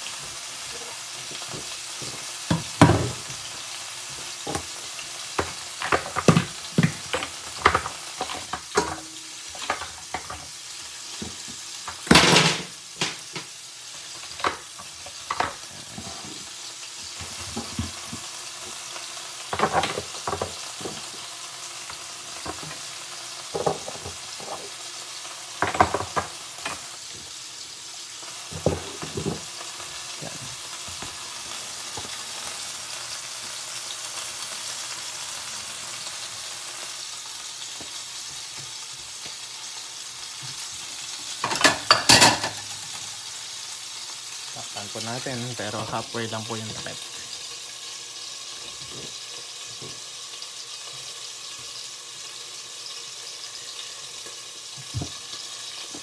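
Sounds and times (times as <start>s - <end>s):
steak sizzling in a pan: 0.0s - 56.0s.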